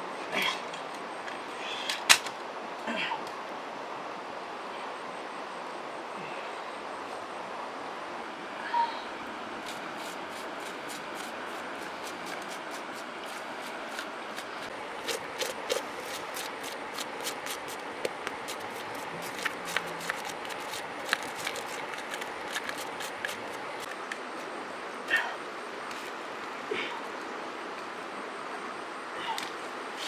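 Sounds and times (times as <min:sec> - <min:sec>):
steady rushing hiss: 0:01.0 - 0:30.0
stick scraping fish skin: 0:09.6 - 0:24.0.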